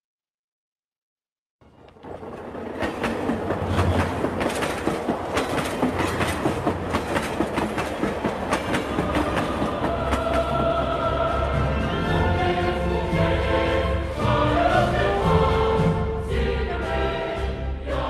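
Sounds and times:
rhythmic clattering clicks: 1.9 - 11.3.

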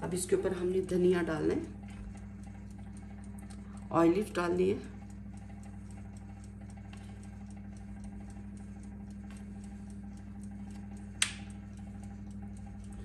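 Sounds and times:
low hum: 0.0 - 13.0
rapid ticking: 0.0 - 13.0
sharp click: 5.0 - 12.9.

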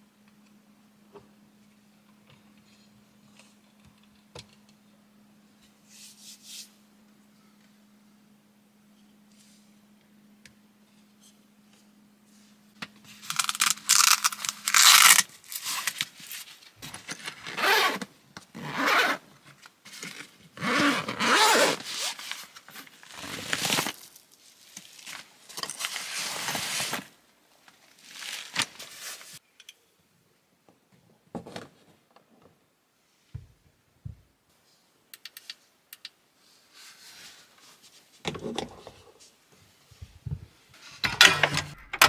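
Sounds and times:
low steady hum: 0.0 - 17.5.

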